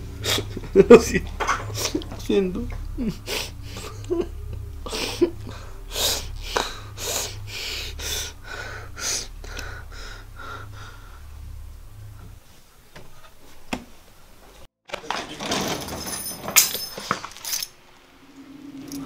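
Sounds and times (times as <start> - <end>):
low hum: 0.0 - 14.4.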